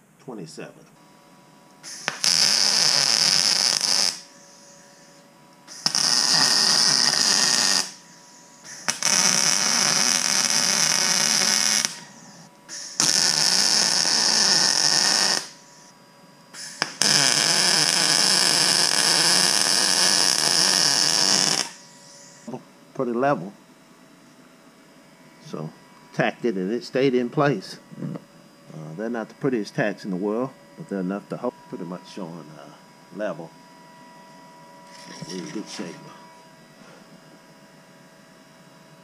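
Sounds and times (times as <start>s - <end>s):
welding arc crackling: 1.8s - 5.0s, 5.7s - 15.9s, 16.6s - 22.5s, 34.8s - 36.1s.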